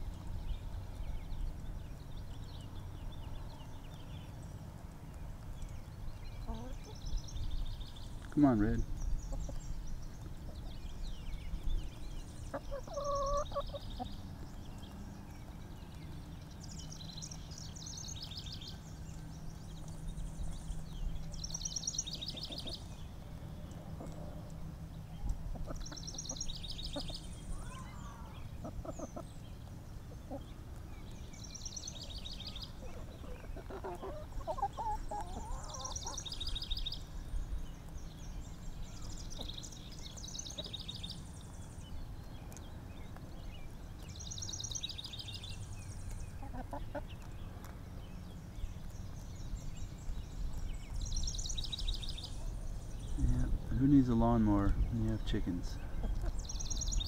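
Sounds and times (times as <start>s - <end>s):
low outdoor noise: 0.0s - 57.0s
chickens clucking: 6.4s - 7.1s, 9.2s - 11.6s, 12.4s - 14.2s, 22.2s - 23.0s, 23.7s - 30.9s, 32.4s - 36.6s, 39.2s - 39.6s, 46.1s - 47.7s, 53.8s - 56.6s.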